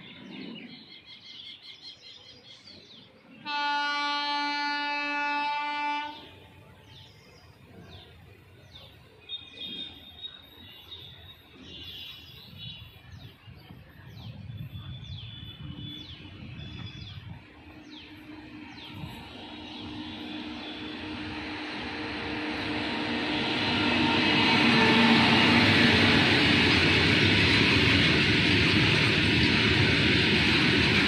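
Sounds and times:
electric locomotive humming: 0.0s - 31.0s
low rumble of approaching train: 0.0s - 31.0s
locomotive horn: 3.4s - 6.5s, 19.9s - 26.1s.

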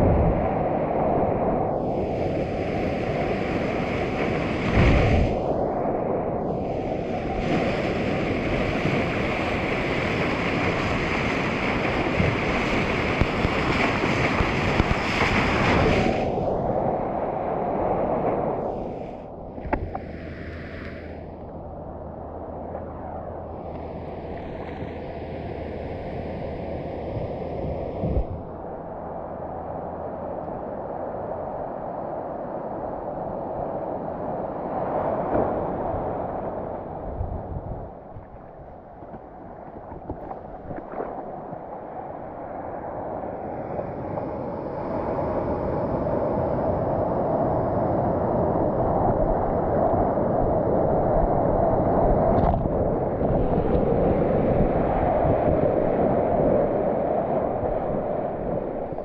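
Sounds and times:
water sloshing around camera: 38.0s - 42.4s.

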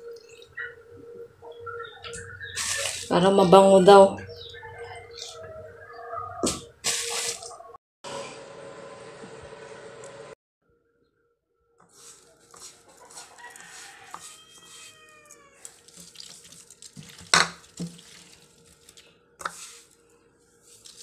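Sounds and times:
hands handling wet fish: 2.1s - 3.2s, 11.8s - 21.0s
rooster crowing: 4.6s - 6.5s, 12.9s - 15.8s.

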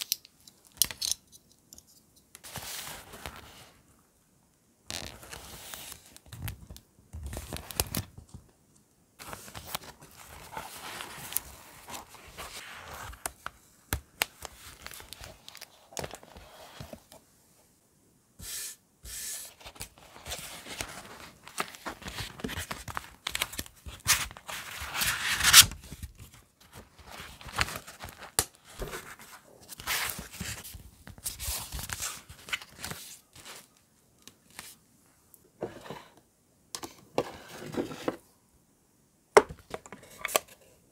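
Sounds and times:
paper pages rustling: 9.2s - 13.6s, 14.2s - 17.2s, 19.5s - 34.8s.

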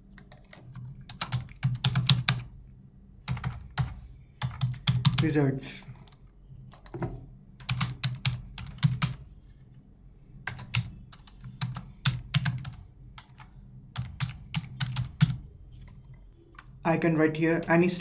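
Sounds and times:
keyboard typing: 0.1s - 2.5s, 3.3s - 5.3s, 5.9s - 9.2s, 10.4s - 16.8s.

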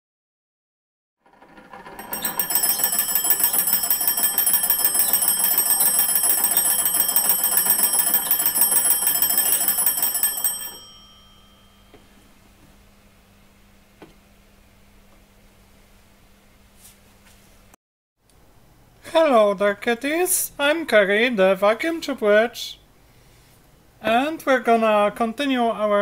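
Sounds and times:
telephone bells ringing: 1.5s - 12.0s.

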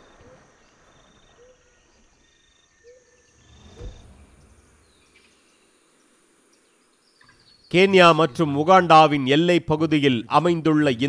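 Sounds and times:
high drone of insects: 0.0s - 8.3s
low thump: 3.6s - 5.1s.

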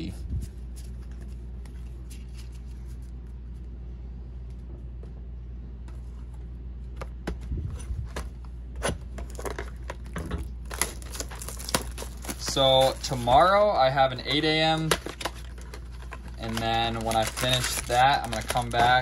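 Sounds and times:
trading cards and foil rustling: 0.0s - 3.6s, 9.2s - 19.0s
steady low hum: 0.0s - 19.0s.

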